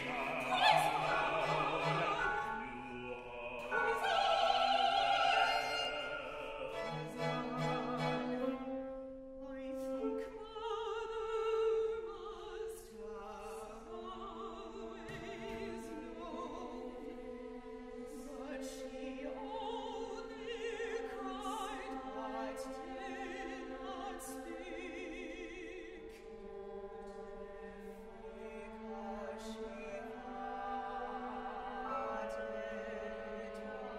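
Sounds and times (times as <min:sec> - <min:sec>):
accompanying ensemble: 0:00.0 - 0:08.6
opera voices singing: 0:00.0 - 0:08.8, 0:09.5 - 0:33.9.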